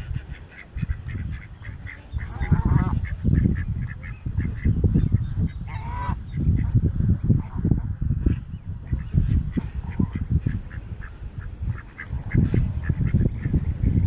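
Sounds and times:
waterfowl honking: 0.0s - 4.7s, 5.5s - 6.7s
low microphone rumble: 0.0s - 14.0s.

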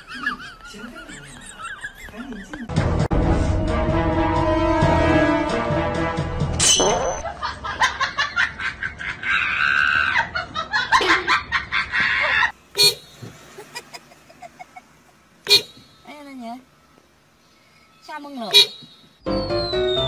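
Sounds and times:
car horn toots: 12.7s - 13.3s, 15.4s - 16.0s, 18.5s - 19.1s.

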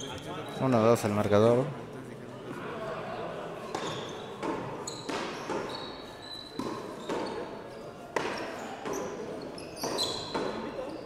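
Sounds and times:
sneakers squeaking on court floor: 3.6s - 11.0s.

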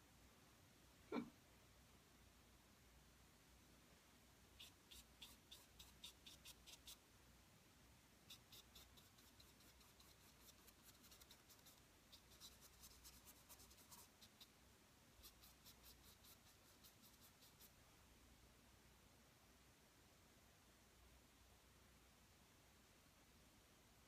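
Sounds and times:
paintbrush strokes on canvas: 4.6s - 7.0s, 8.2s - 14.6s, 15.2s - 17.8s.

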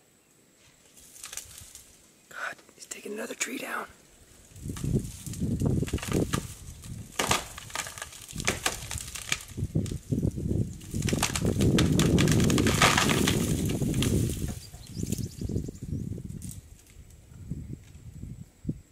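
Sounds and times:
leafy branches crunching and rustling: 0.6s - 2.3s, 2.9s - 17.3s
wood cracking and snapping: 1.1s - 1.9s, 4.5s - 15.2s.

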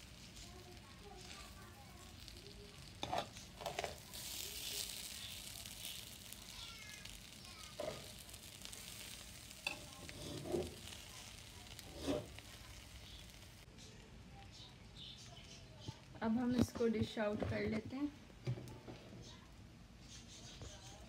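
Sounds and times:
spatula stirring rice in pot: 0.0s - 6.4s, 7.0s - 13.6s
rice rustling hiss: 0.0s - 13.7s.

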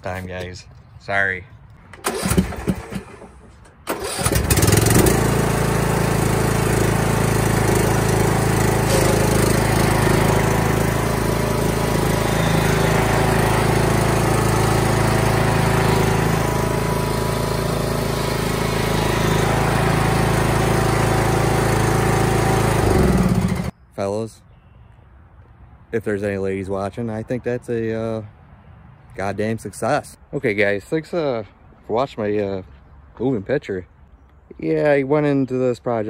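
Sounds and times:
lawn mower engine running: 2.0s - 23.7s.

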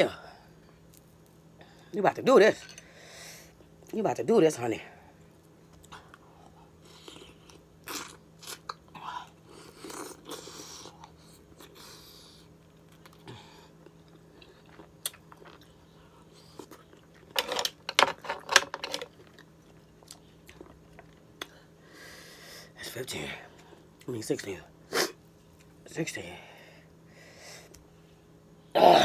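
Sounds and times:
faint low hum: 0.0s - 29.0s
chewing and biting: 12.4s - 17.4s, 19.0s - 21.6s.

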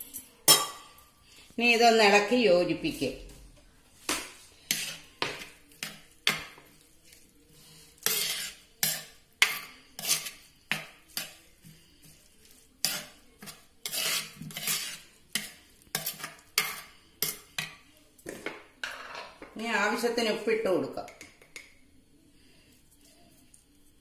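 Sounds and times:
ladle scraping clay pot: 7.9s - 17.4s.

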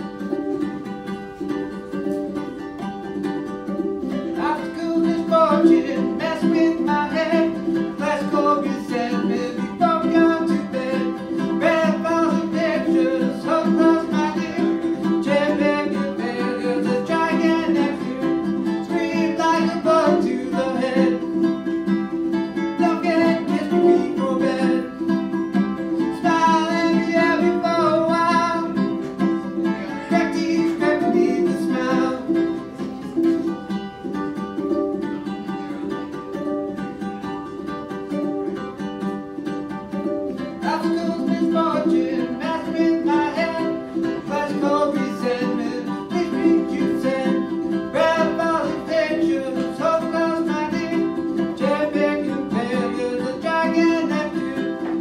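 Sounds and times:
ukulele strumming: 0.0s - 55.0s
man singing: 4.2s - 21.5s, 22.6s - 32.6s, 40.5s - 55.0s.

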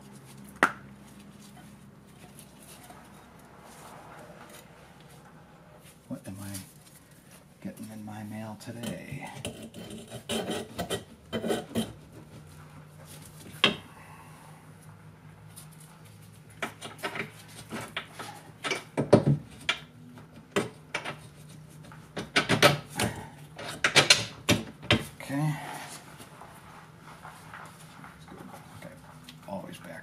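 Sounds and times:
metal scraping and rubbing: 8.8s - 12.4s.

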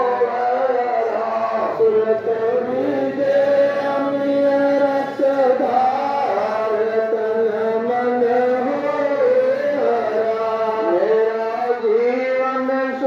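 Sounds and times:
group chanting a prayer in unison: 0.0s - 13.0s.

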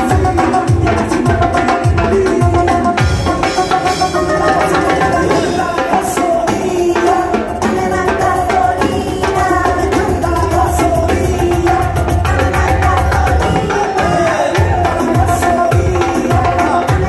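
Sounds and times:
sustained pitched melody: 2.9s - 8.6s.

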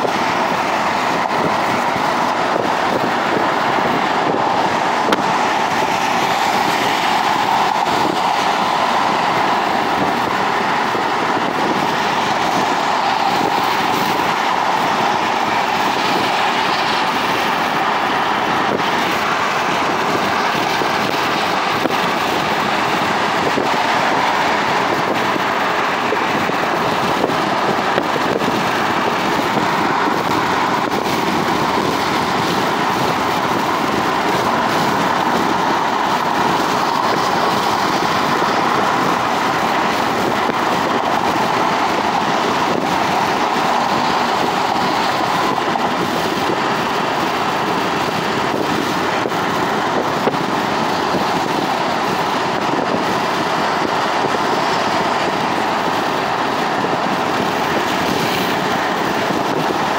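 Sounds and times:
road and tyre noise: 0.0s - 59.9s
wind rush: 0.0s - 59.9s.

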